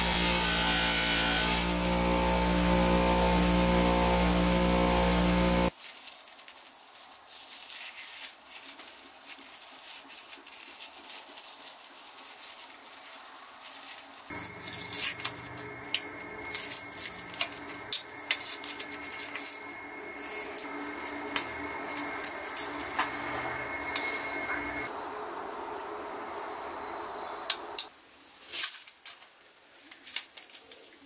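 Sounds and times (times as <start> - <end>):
crackling flakes peeled off steel: 1.7 - 29.3.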